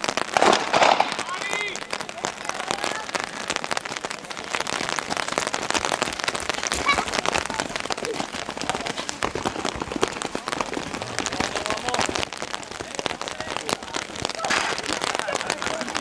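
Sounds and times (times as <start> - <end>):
rain pattering: 0.0 - 16.0
faint voices: 0.9 - 16.0.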